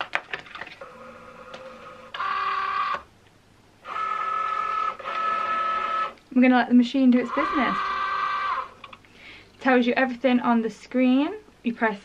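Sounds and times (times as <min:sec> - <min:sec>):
faint motor hum: 0:00.6 - 0:12.0
cutting machine motor whine: 0:03.8 - 0:06.2, 0:07.3 - 0:08.8.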